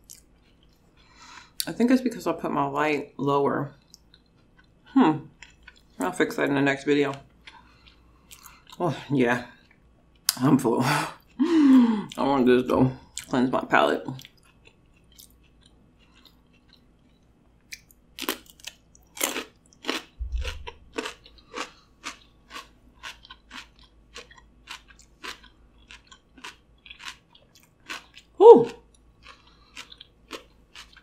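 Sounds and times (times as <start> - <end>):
crunchy chewing: 7.4 - 8.8, 14.1 - 31.0
short voiced sound: 28.4 - 28.8.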